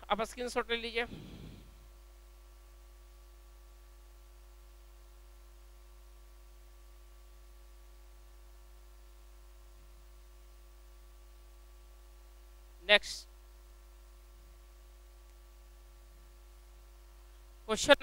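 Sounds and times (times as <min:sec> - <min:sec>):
faint hiss: 0:00.0 - 0:11.6
steady electrical hum: 0:00.0 - 0:18.0.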